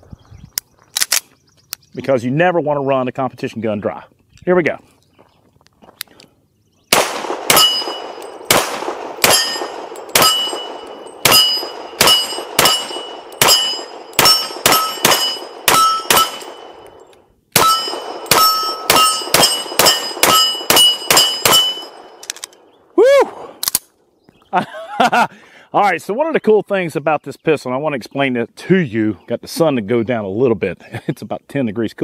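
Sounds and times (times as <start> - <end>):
pistol shots: 6.9 - 17.0, 17.6 - 22.6
steel targets ringing: 7.5 - 8.6, 9.2 - 22.2.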